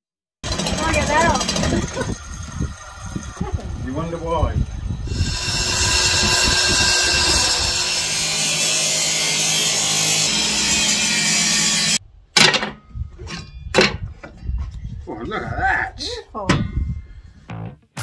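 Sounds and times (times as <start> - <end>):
power tool cutting timber: 0.4 - 4.2, 5.0 - 12.0
motor hum: 4.6 - 8.6.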